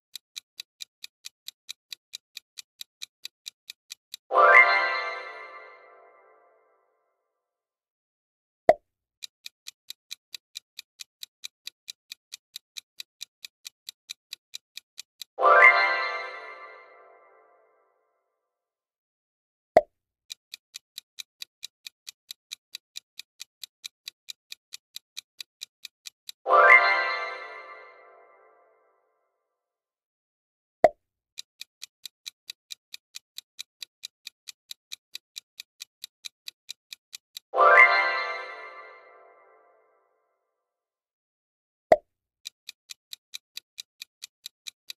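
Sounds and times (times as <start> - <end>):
clock ticking: 0.0 - 5.8, 9.2 - 16.9, 20.3 - 28.0, 30.8 - 39.2, 42.4 - 44.9
timer click: 0.0 - 5.8, 9.2 - 17.0, 20.5 - 28.5, 31.5 - 39.6, 42.6 - 44.9.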